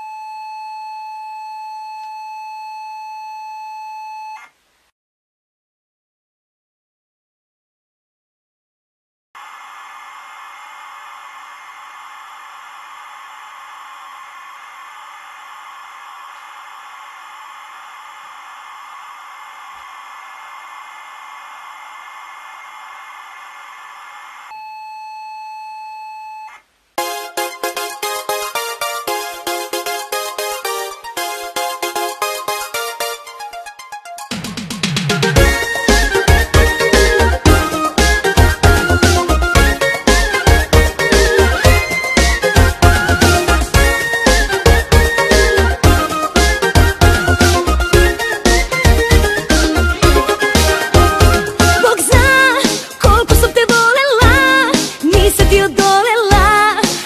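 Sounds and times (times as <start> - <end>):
telephone line tone: 0.0 - 4.5
electronic static hiss: 9.4 - 24.5.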